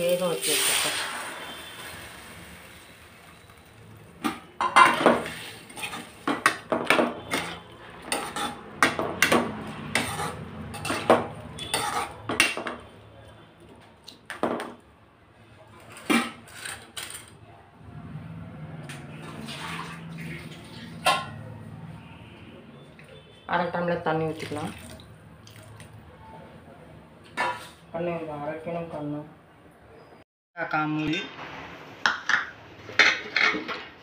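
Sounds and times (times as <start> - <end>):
metal spoon scraping steel bowl: 4.8 - 6.2, 7.2 - 12.4.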